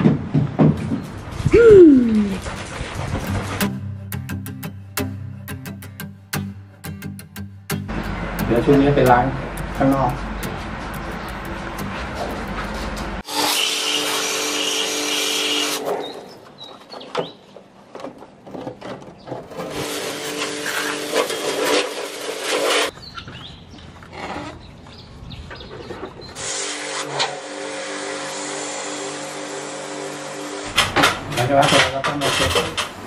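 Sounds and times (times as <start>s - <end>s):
pressure washer spraying: 13.3s - 15.8s, 19.6s - 22.9s, 26.4s - 30.8s.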